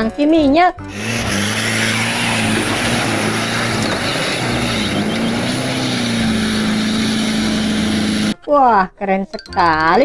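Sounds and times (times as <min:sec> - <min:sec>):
truck engine in mud: 0:00.9 - 0:08.4.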